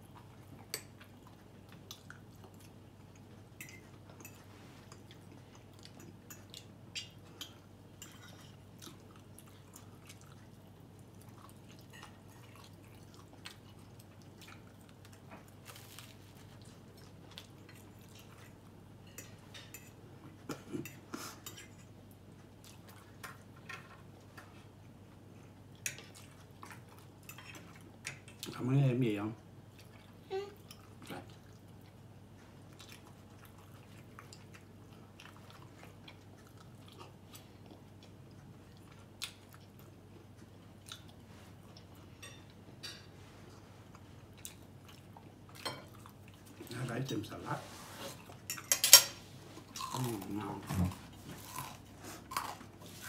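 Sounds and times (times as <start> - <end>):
quiet chewing: 0.0 - 28.6, 29.7 - 48.7.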